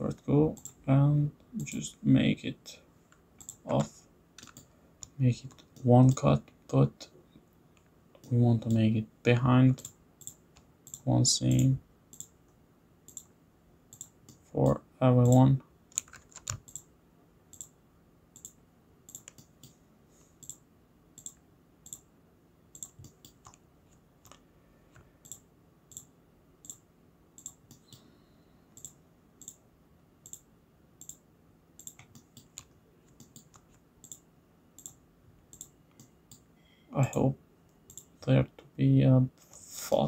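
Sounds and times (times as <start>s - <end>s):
faint steady hum: 0.0s - 40.0s
computer mouse clicks: 3.1s - 6.2s, 9.8s - 12.4s, 13.1s - 13.3s, 13.9s - 14.4s, 15.2s - 16.9s, 17.5s - 17.8s, 18.4s - 19.8s, 20.4s - 20.6s, 21.2s - 22.1s, 22.7s - 26.8s, 27.4s - 28.1s, 28.7s - 29.6s, 30.2s - 31.2s, 31.8s - 34.2s, 34.8s - 36.5s, 37.9s - 38.1s.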